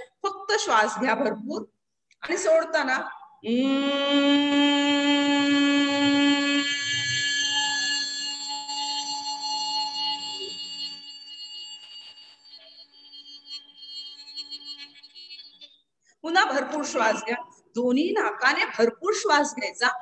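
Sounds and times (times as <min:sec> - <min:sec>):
woman humming: 0:03.5 - 0:06.8.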